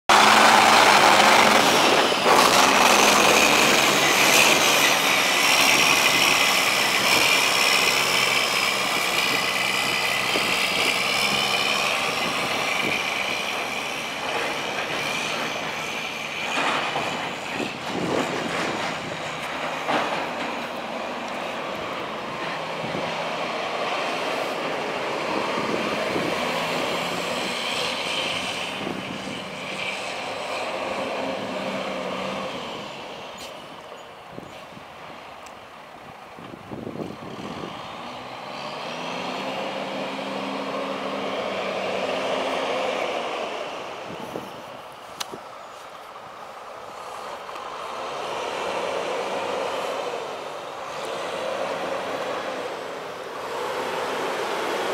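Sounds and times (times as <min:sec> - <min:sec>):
diesel truck engine running: 0:00.1 - 0:33.8.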